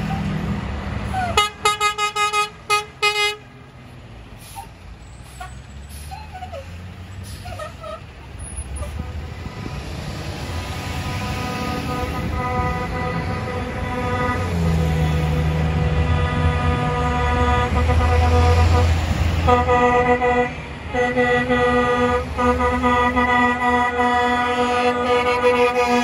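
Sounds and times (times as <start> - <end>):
truck engines driving past: 0.0 - 26.0
long truck horn blast: 1.0 - 3.5, 8.8 - 26.0
truck horn short toots: 1.1 - 3.5, 8.8 - 9.8, 11.0 - 26.0.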